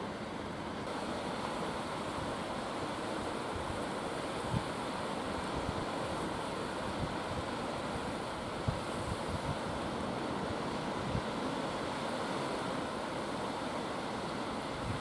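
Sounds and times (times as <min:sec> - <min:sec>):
small waves washing onto shore: 0:00.0 - 0:15.0
wind buffeting microphone: 0:08.4 - 0:09.8.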